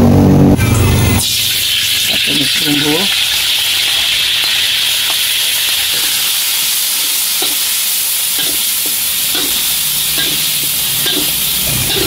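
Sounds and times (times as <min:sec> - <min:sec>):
spice paste sizzling in oil: 0:01.2 - 0:12.0
metal spoon scraping a pan: 0:02.1 - 0:06.3, 0:07.3 - 0:12.0.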